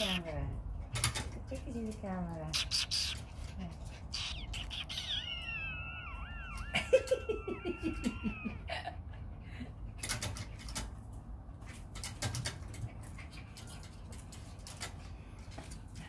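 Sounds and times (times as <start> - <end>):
dog whining: 0.0 - 0.3, 4.0 - 9.0
claws clicking on tiles and fence: 0.0 - 5.4, 10.0 - 16.0
short dog cries: 4.2 - 8.8.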